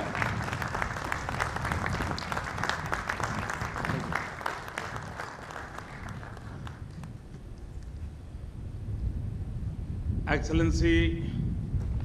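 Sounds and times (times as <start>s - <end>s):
crowd applauding: 0.0s - 7.2s.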